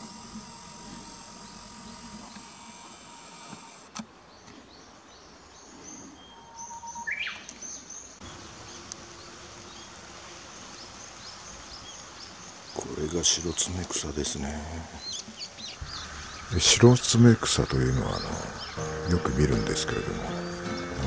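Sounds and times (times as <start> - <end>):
high chirps of small birds: 4.3 - 21.0
warbler singing: 4.3 - 21.0.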